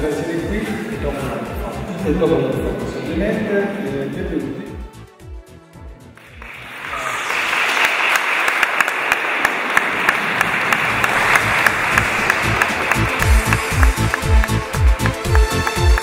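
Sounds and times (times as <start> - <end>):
audience applauding: 6.2 - 16.0
music with low pulsing beat: 11.4 - 16.0.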